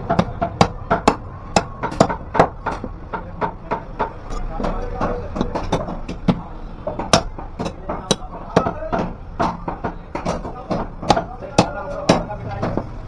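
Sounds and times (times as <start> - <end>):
cleaver chopping on wooden block: 0.0 - 12.9.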